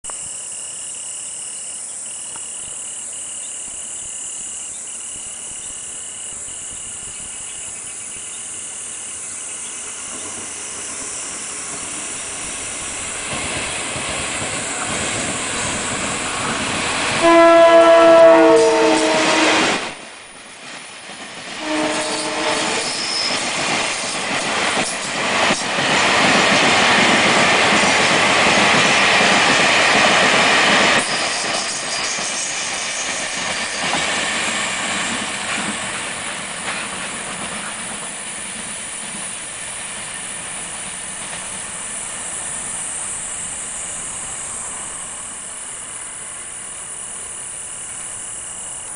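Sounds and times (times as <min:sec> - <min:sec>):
freight train wheels clattering: 0:10.1 - 0:17.3, 0:18.1 - 0:42.7
train horn: 0:17.1 - 0:20.0, 0:21.6 - 0:23.4.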